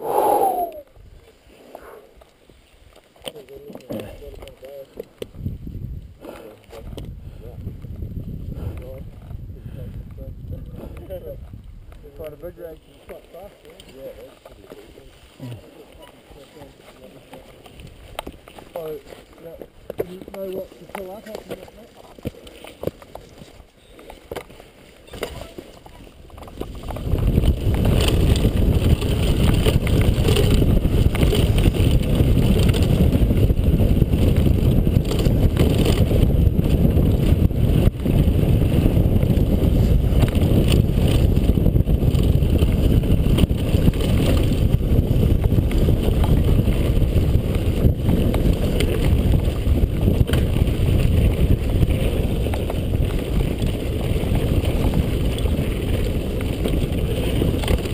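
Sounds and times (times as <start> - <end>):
wind rushing over microphone: 0.0 - 1.3, 5.2 - 12.6, 25.2 - 57.9
mountain bike rattling on dirt trail: 2.4 - 57.9.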